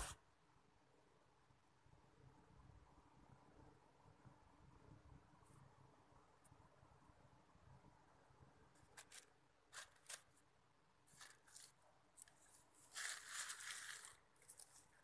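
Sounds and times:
plastic sheeting crinkling: 8.9 - 10.4, 11.0 - 15.0.

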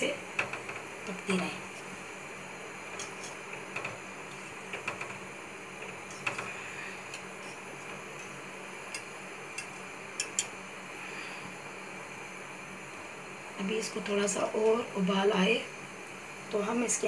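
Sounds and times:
background hiss: 0.0 - 17.0
whisk tapping metal pot: 5.8 - 10.5.

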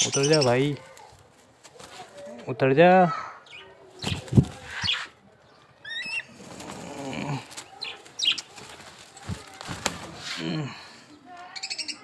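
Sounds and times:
eagle wings flapping: 6.3 - 10.4.

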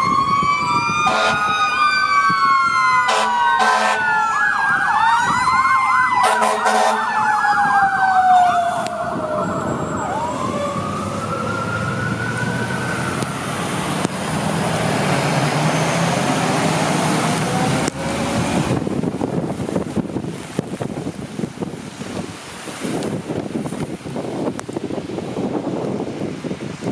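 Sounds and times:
fire truck sirens: 0.0 - 19.9
engines and tyres on wet road: 3.6 - 26.9
wet road traffic hiss: 10.7 - 26.9.

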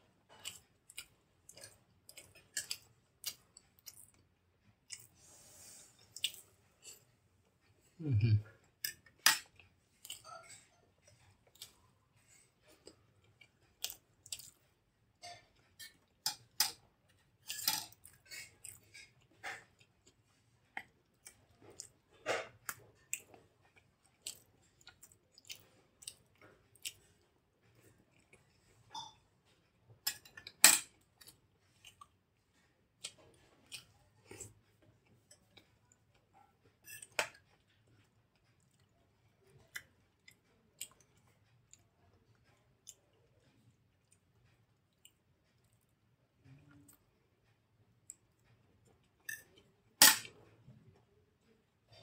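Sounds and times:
wet chewing: 12.7 - 14.6.

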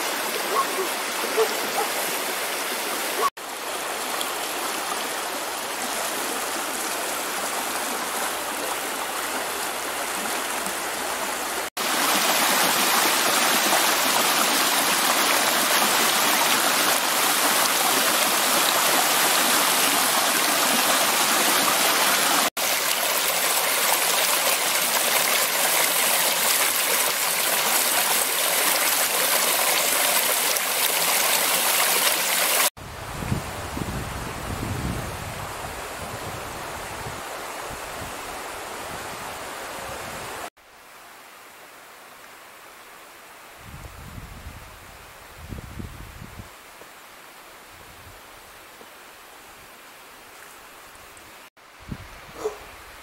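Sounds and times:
stream running over rocks: 0.0 - 34.3.

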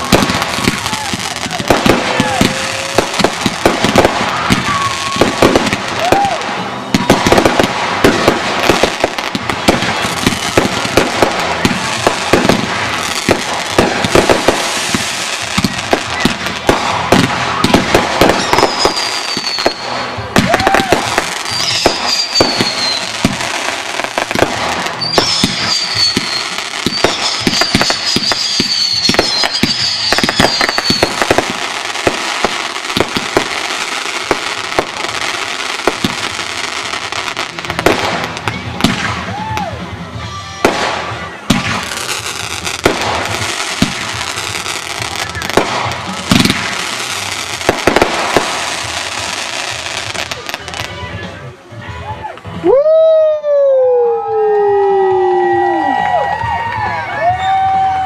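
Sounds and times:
fireworks bangs and crackling: 0.0 - 52.6, 54.4 - 58.0
fireworks whistles falling in pitch: 3.9 - 8.8, 17.5 - 23.4, 24.5 - 31.5.

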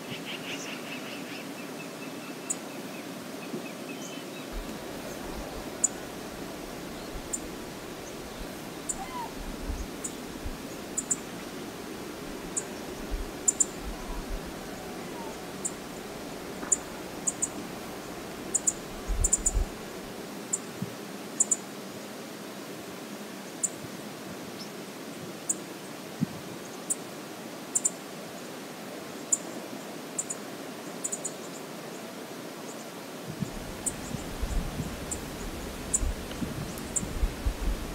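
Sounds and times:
flowing river water: 2.7 - 23.5.

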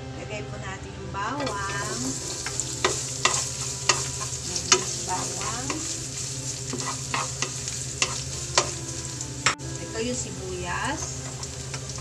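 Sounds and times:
wooden spatula scraping pan: 1.4 - 9.2, 10.8 - 12.0
garlic sizzling in oil: 1.4 - 12.0.

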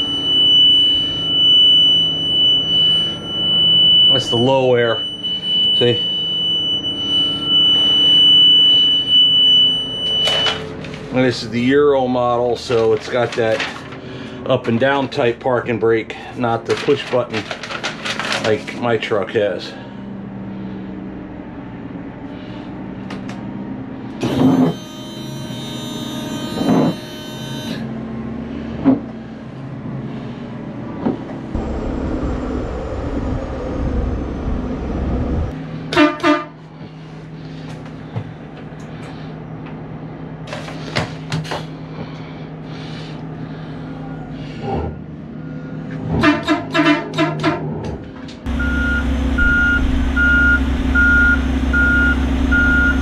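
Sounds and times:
reversing alarm beeping: 0.0 - 10.8, 24.2 - 28.0, 48.5 - 53.0
diesel engine running: 0.0 - 53.0
horn toots: 24.2 - 27.9, 35.9 - 36.6, 46.1 - 47.7.

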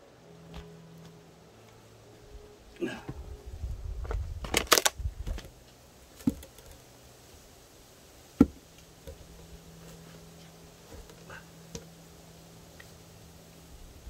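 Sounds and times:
wooden log knocking against logs: 6.2 - 6.8, 8.4 - 9.4.

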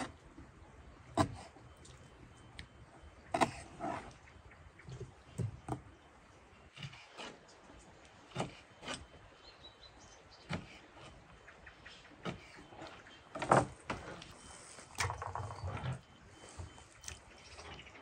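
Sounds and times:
knocks and clatters: 15.0 - 16.0.

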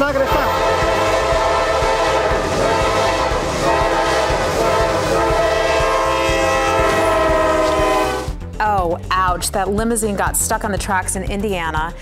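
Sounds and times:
train rumbling: 0.0 - 8.4
locomotive air horn blast: 0.3 - 8.4.

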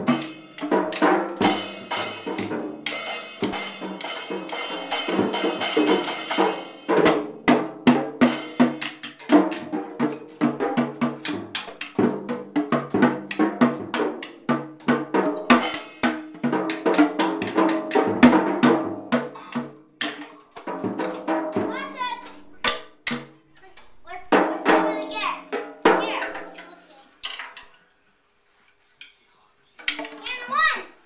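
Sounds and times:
drum kit played: 0.0 - 26.9
cymbal ringing: 1.4 - 6.9.

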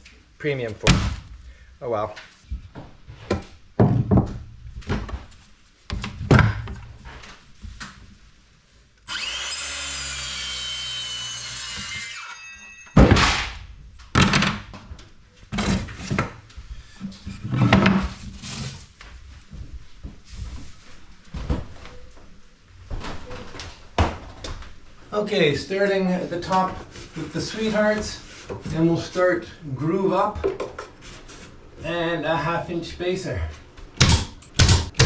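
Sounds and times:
circular saw cutting wood: 9.0 - 12.7.

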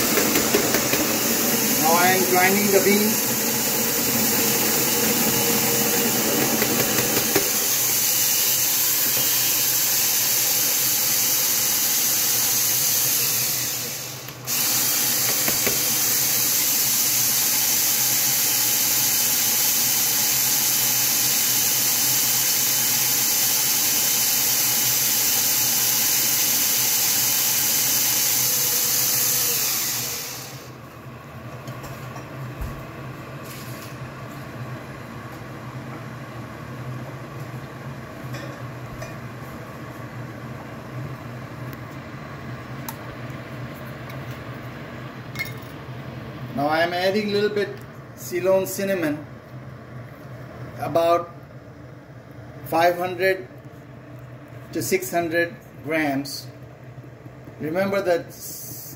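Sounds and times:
electric coffee grinder whirring: 0.0 - 30.8.

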